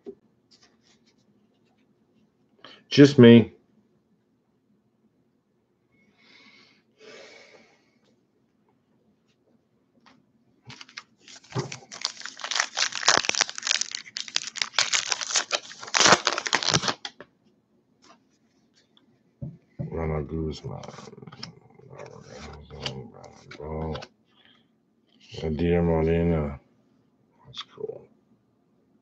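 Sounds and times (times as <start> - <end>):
card pack wrapper tearing and crinkling: 10.7 - 17.2.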